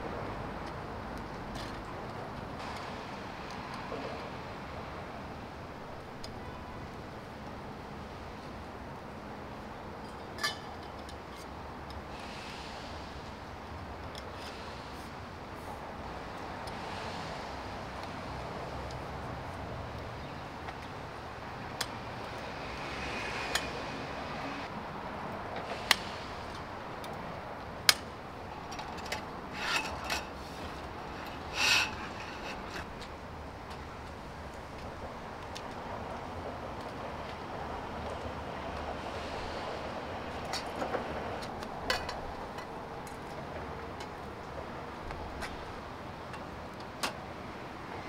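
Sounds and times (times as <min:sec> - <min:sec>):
background hiss: 0:12.0 - 0:28.7.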